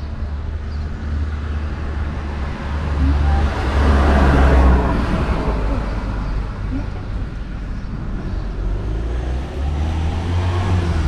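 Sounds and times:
car passing: 0.3s - 11.0s.

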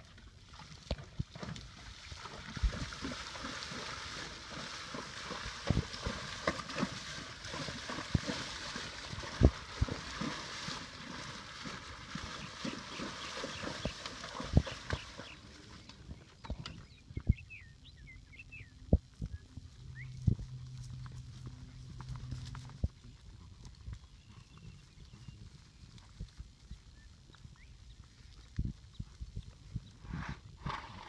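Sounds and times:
horse legs splashing through water: 0.0s - 16.5s
hooves thudding on stony bottom: 0.9s - 17.4s, 20.1s - 30.3s.

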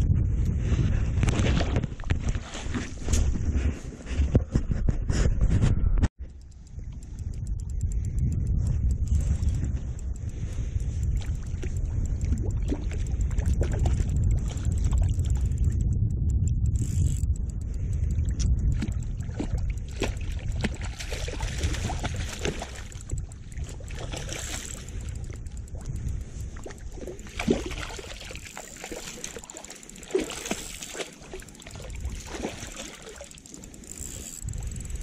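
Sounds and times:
wind rumble on microphone: 0.0s - 35.0s
fish splashing in water: 19.2s - 25.3s, 26.6s - 33.6s.

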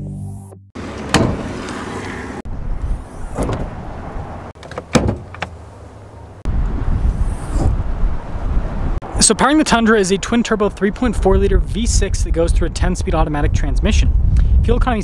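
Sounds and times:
truck doors and hood clunking: 0.8s - 2.2s, 2.8s - 6.3s
steady outdoor noise: 0.8s - 14.8s.

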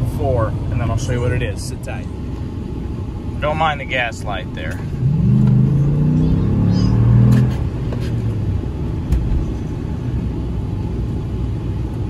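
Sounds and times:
road noise: 0.0s - 12.0s
truck engine accelerating: 4.3s - 12.0s.

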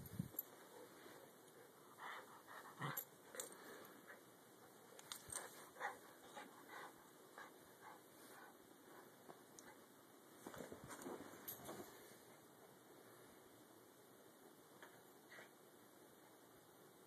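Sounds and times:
rustling: 0.0s - 12.4s
dog panting faintly: 0.6s - 3.1s, 5.3s - 9.8s.

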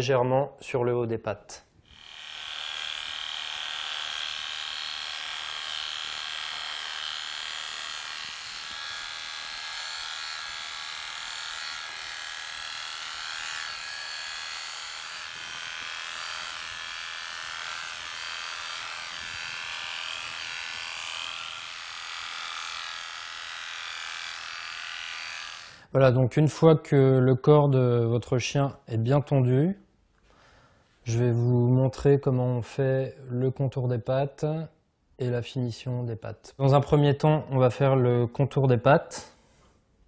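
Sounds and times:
electric dog clipper buzzing: 1.8s - 25.9s.

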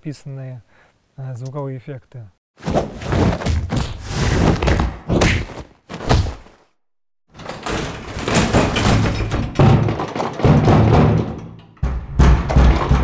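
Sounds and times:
thuds and knocks: 2.6s - 6.4s, 7.4s - 13.0s
door slam: 7.4s - 13.0s.

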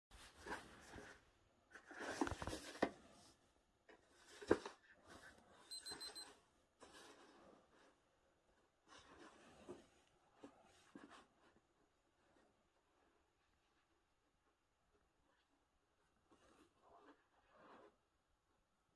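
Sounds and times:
book cover rustling and scraping: 0.2s - 5.5s, 16.2s - 18.0s
high electronic beeps: 5.7s - 6.2s.

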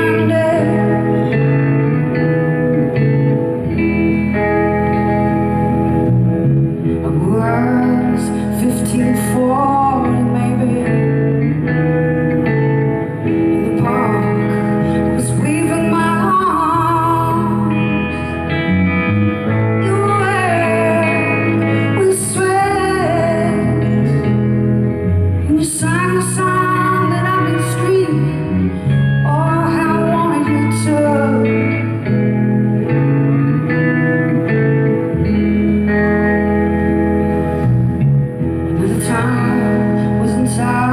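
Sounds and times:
woman singing with vibrato: 0.0s - 2.3s, 7.0s - 11.5s, 13.2s - 18.7s, 19.5s - 24.5s, 25.4s - 32.2s, 38.7s - 40.9s
electric guitar chords: 0.0s - 40.9s.

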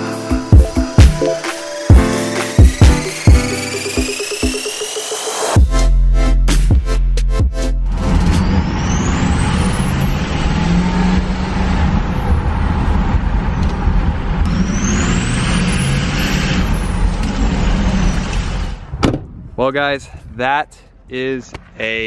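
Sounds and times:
diesel truck engine: 7.6s - 19.3s
turbocharger whistling: 7.8s - 12.5s, 14.4s - 18.6s.

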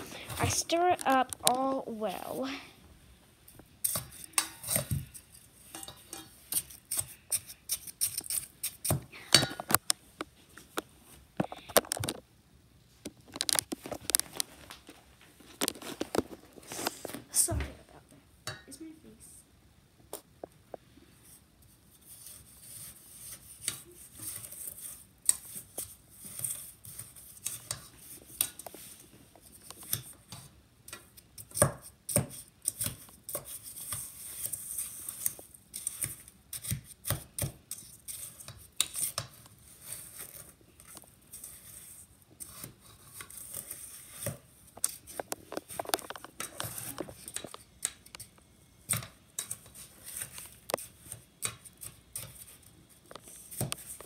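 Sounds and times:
spoon scraping snow in metal bowl: 3.8s - 9.0s, 21.9s - 29.0s, 32.1s - 36.8s, 37.4s - 45.7s.

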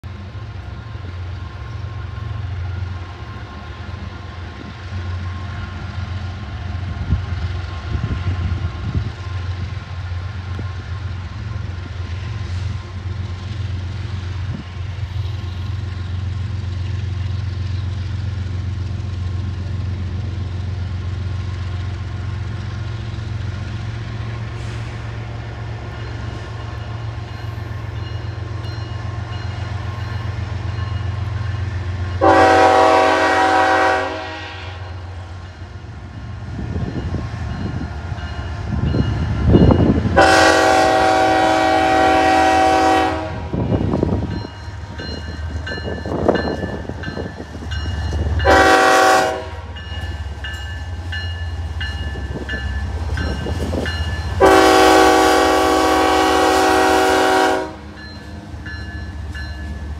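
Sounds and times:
diesel locomotive droning: 0.0s - 59.9s.

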